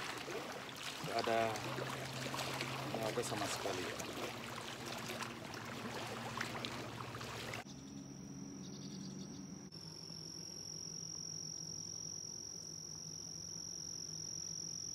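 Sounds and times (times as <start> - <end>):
insect trill: 7.6 - 14.9.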